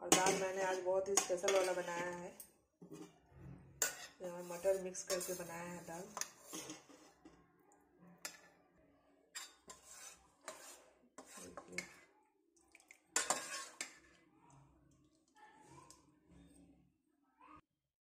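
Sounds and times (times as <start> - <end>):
spoon scraping metal bowl: 0.1 - 3.1, 3.8 - 7.4, 9.3 - 12.1, 13.2 - 14.2.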